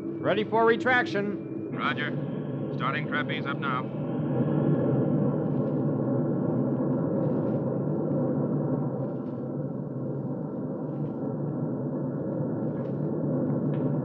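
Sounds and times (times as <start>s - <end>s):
bomber engines droning: 0.0s - 8.6s
faint crackles: 6.8s - 11.5s, 12.5s - 14.0s.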